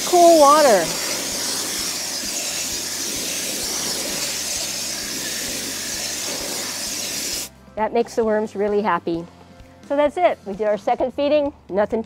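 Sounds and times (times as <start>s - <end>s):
water spraying onto bedding: 0.0s - 7.5s.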